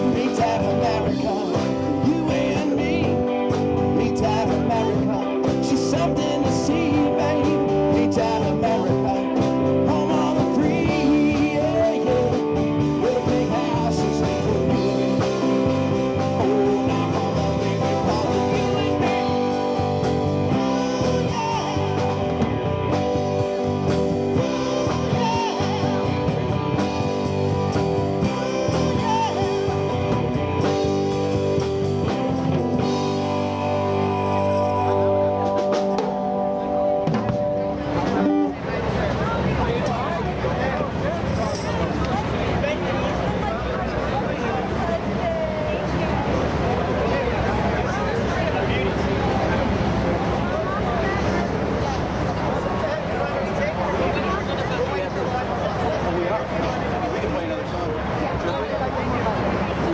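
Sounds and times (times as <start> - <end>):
man singing: 0.0 - 31.7, 32.8 - 36.0
drum kit: 0.0 - 38.6
electric and acoustic guitars: 0.0 - 59.9.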